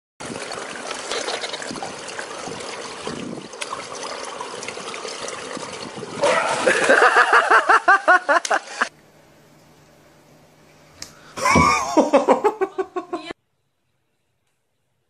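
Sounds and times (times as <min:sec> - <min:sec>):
pool water lapping: 0:00.2 - 0:09.0.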